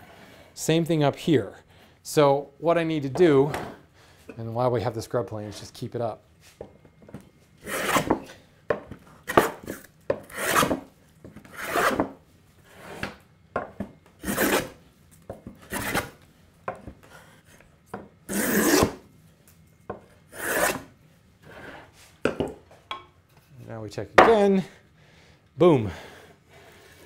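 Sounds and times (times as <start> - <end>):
hand plane rasping across wood: 7.6 - 8.1, 10.3 - 10.8, 11.5 - 12.0, 14.2 - 14.7, 18.3 - 18.9, 20.4 - 20.8.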